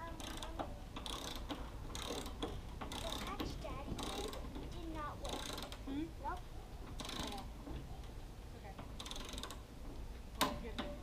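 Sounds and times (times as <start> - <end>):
torque wrench ratcheting: 0.1 - 5.8, 7.0 - 7.5, 9.0 - 9.7.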